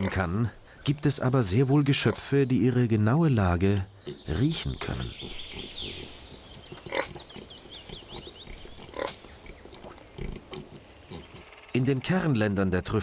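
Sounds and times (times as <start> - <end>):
pig snuffling and grunting: 4.0 - 11.4.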